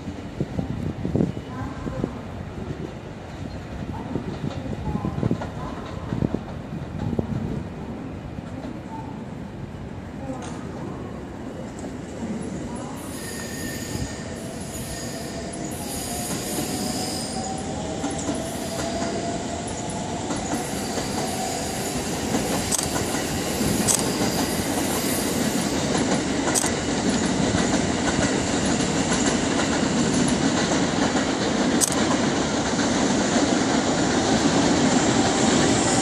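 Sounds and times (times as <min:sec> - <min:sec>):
train wheels rumbling and squealing: 0:00.0 - 0:09.2, 0:11.0 - 0:36.0
faint train whine: 0:00.0 - 0:36.0
wheels clicking on rail joints: 0:22.3 - 0:36.0.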